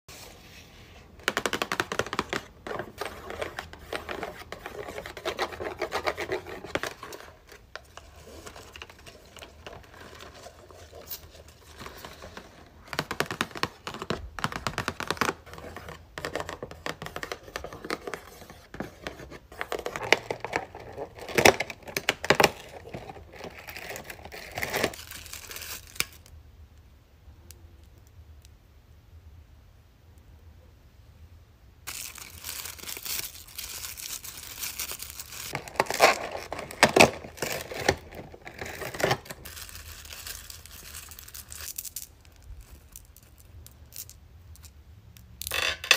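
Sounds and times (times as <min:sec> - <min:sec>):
paper tearing and crumpling: 0:31.9 - 0:42.0.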